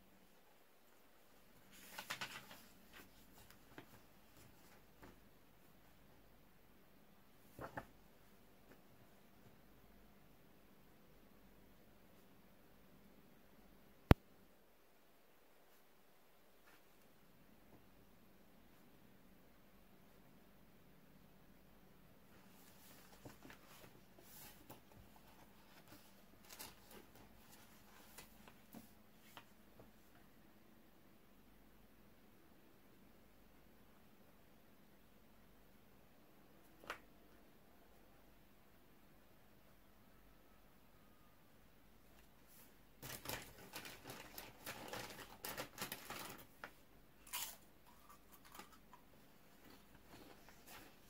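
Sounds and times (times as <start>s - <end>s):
paper pages rustling: 1.6s - 5.2s, 22.5s - 29.5s, 43.0s - 46.8s, 49.6s - 51.0s
foil crisp packet crinkling: 43.0s - 46.6s.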